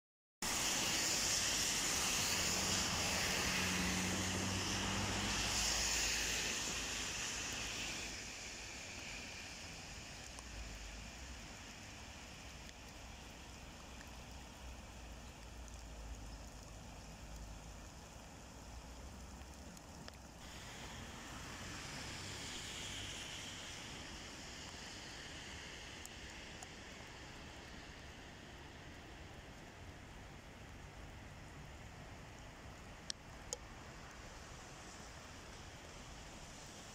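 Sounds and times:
traffic hiss: 0:00.4 - 0:36.9
vehicle engine low hum: 0:02.1 - 0:08.2.

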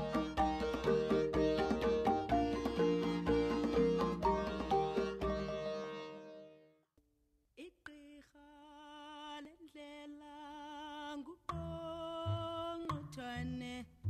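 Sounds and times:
plucked-string music: 0:00.0 - 0:06.6.

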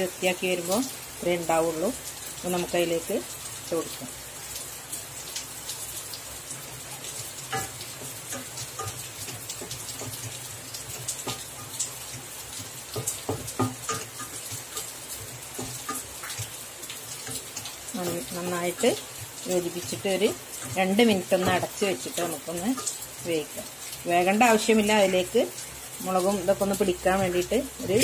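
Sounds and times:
food sizzling in a metal pan: 0:00.0 - 0:28.0
spatula scraping a pan: 0:12.6 - 0:16.6.

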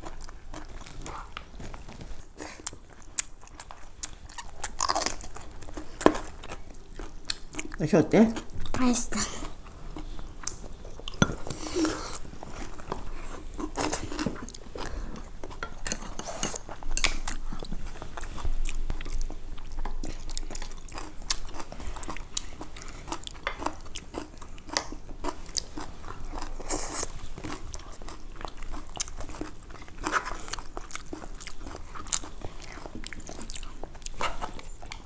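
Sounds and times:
wet chewing mouth sounds: 0:00.0 - 0:35.0
food crunches: 0:01.6 - 0:07.8.

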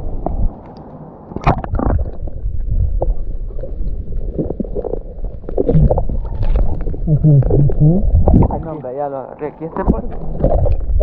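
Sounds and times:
muffled underwater rumble: 0:00.0 - 0:11.0
water sloshing and splashing: 0:00.3 - 0:08.9.

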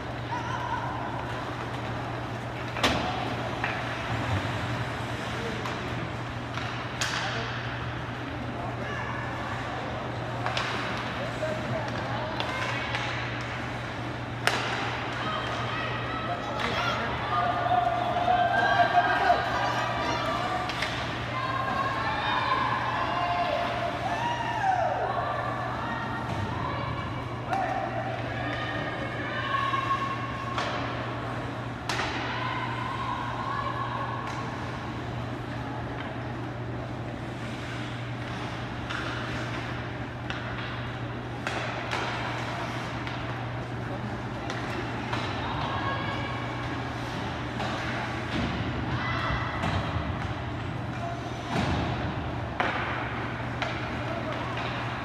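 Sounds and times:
low arena hum: 0:00.0 - 0:55.0
sticks and puck hitting boards: 0:06.5 - 0:07.8, 0:10.4 - 0:11.2, 0:14.4 - 0:15.6, 0:38.2 - 0:43.4, 0:47.6 - 0:55.0.

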